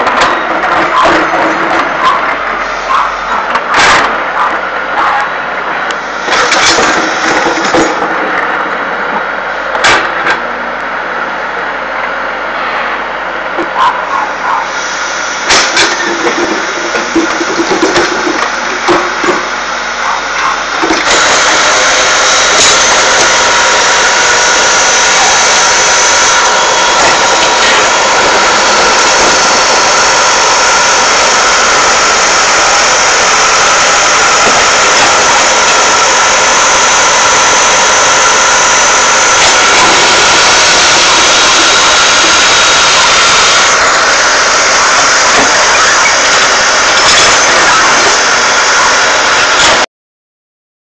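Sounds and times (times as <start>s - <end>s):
diesel engine running: 0.0s - 49.8s.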